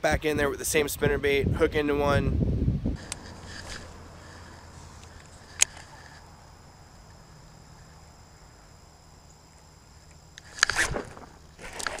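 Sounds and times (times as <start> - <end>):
rod handling noise: 3.0 - 6.2
faint high-pitched ringing: 3.0 - 12.0
riverbank ambience: 3.0 - 12.0.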